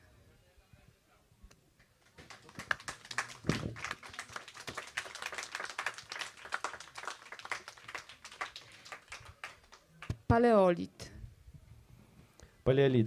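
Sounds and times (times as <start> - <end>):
audience applauding: 2.0 - 10.1.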